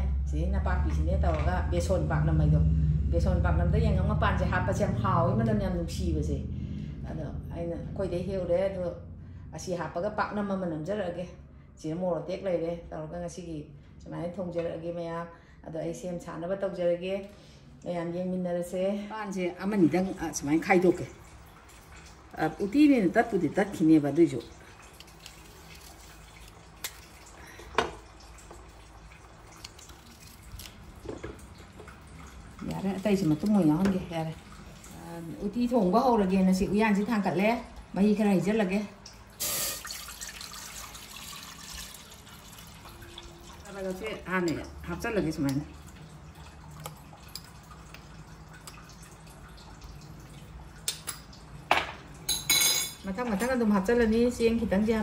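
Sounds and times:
low steady hum: 0:00.0 - 0:55.0
water dripping in a pot: 0:20.2 - 0:36.3, 0:38.2 - 0:52.4.

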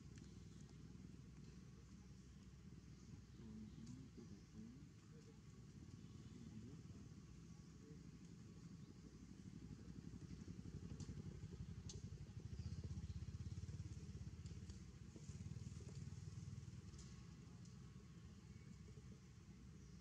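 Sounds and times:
faint ticks: 0:00.0 - 0:02.6, 0:03.4 - 0:06.7, 0:10.2 - 0:19.2.

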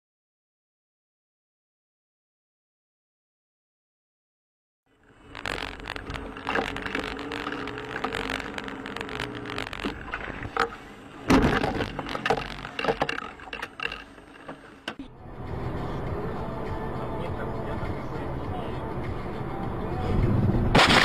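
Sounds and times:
engine hum: 0:04.9 - 0:21.0
road noise: 0:04.9 - 0:21.0
knocks and rattles: 0:05.3 - 0:15.0
loud thump: 0:11.3 - 0:11.9.

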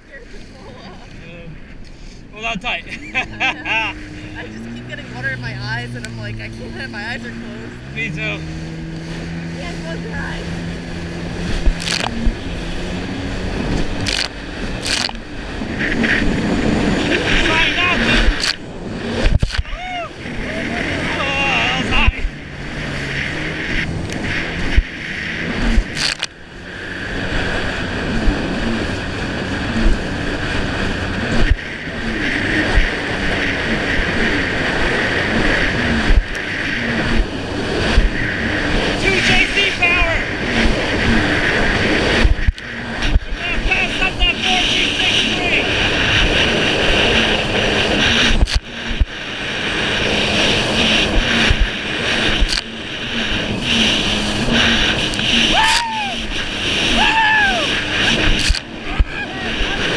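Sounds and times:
hull thumping waves: 0:00.0 - 0:59.9
jet ski engine revving: 0:00.0 - 0:59.9
wind on microphone: 0:00.0 - 0:59.9
hull slapping choppy water: 0:03.1 - 0:59.9
rushing spray: 0:03.1 - 0:59.9
hull knocking on waves: 0:50.6 - 0:52.6.

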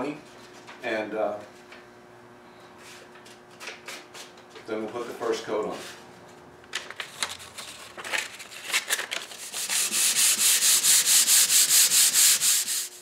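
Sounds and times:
sandpaper rubbing on wood: 0:09.4 - 0:13.0.

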